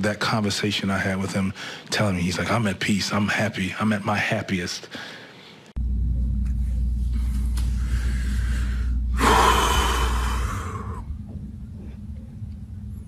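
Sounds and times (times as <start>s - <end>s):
man breathing heavily: 4.9s - 5.7s, 7.7s - 11.1s
steady low hum: 5.7s - 13.0s.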